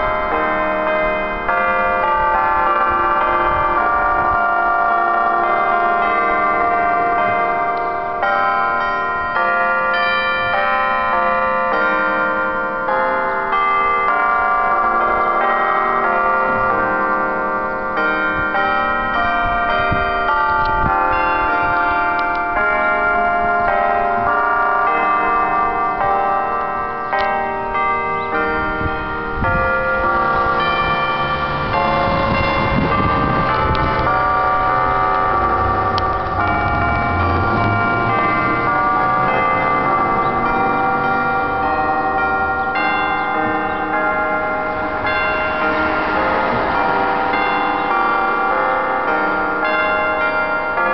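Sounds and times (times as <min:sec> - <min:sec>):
church bells chiming a tune: 0:00.0 - 0:50.9.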